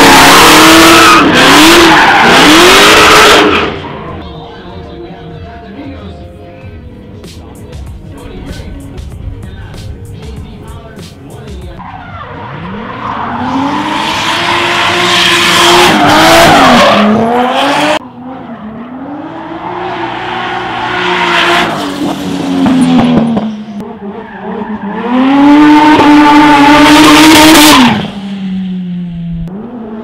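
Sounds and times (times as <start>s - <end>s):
car engines revving high: 0.0s - 4.2s, 11.8s - 30.0s.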